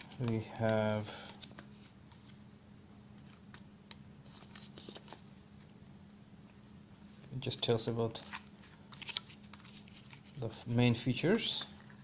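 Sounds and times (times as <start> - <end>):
paper rustling: 0.0 - 2.4, 4.2 - 5.3, 8.1 - 10.6
low steady hum: 0.0 - 12.0.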